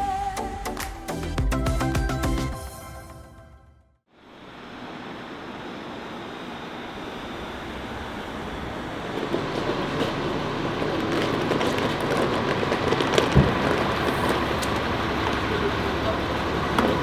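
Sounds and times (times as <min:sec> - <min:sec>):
suitcase wheels rattling on paving: 0:09.2 - 0:15.5.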